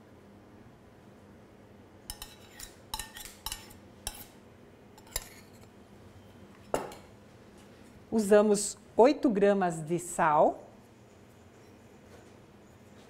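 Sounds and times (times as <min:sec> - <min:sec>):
metal utensils clinking on bowl: 0:02.1 - 0:04.3, 0:05.0 - 0:05.7.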